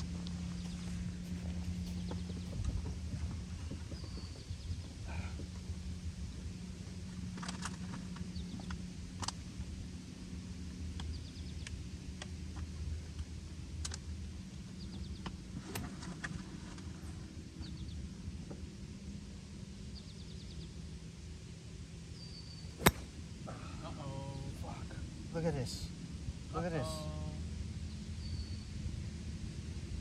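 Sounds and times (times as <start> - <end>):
low motor hum: 0.0 - 5.0.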